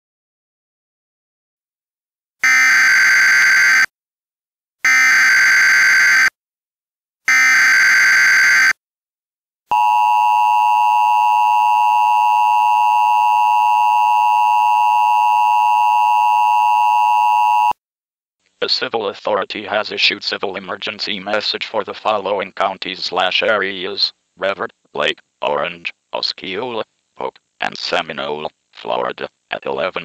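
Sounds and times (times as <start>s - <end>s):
two-tone attention signal: 9.7s - 17.8s.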